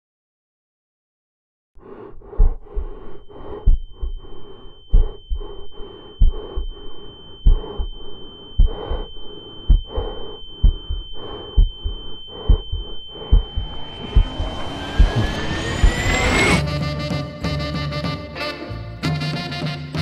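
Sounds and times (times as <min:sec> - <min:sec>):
heavy heartbeat thumping: 0:01.8 - 0:16.7
high-pitched ringing tone: 0:01.9 - 0:16.7.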